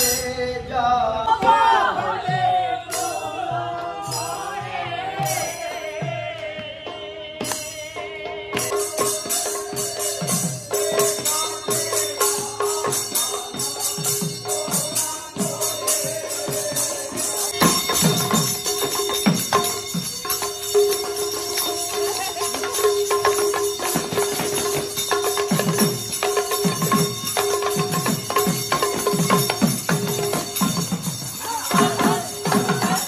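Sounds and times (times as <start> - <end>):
hand drums in fast rhythm: 1.3 - 33.0
bright metallic jingling: 9.0 - 33.0.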